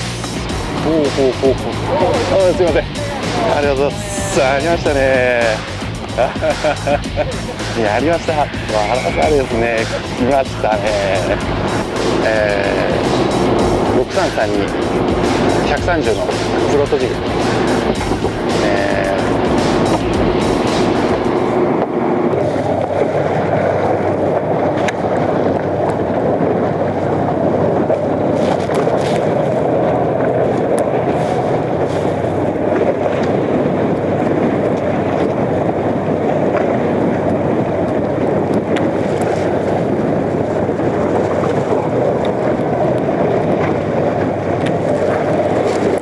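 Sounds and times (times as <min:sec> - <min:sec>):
choppy sea rushing: 0:00.0 - 0:46.0
wind buffeting microphone: 0:00.0 - 0:46.0.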